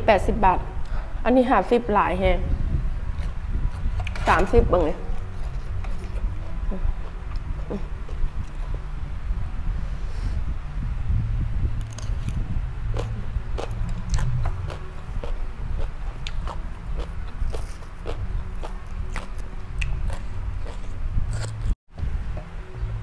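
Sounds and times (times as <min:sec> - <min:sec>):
chewing crunchy food: 0:11.8 - 0:21.8.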